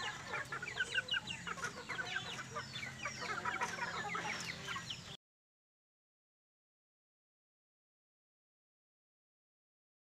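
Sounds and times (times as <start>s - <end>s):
chickens clucking and chirping: 0.0s - 5.2s.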